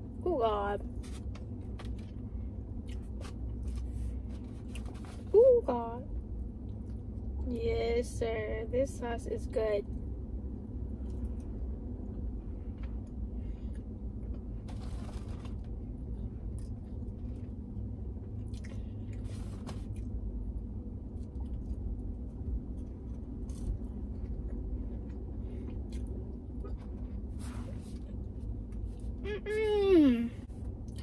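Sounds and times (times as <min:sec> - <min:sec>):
steady low hum: 0:00.0 - 0:31.0
person chewing with crunchy bites: 0:01.0 - 0:05.3, 0:16.4 - 0:29.3.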